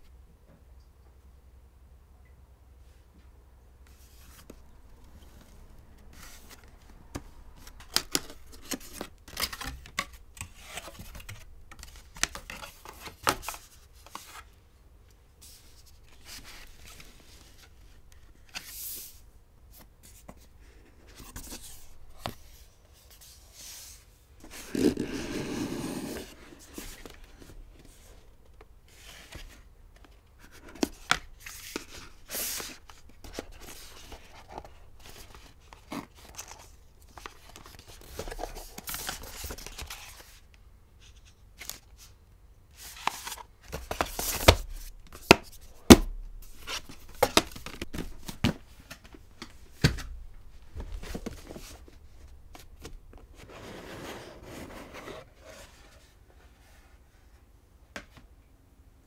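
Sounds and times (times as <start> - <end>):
cardboard boxes rubbing and sliding: 24.5 - 27.0, 53.3 - 56.1.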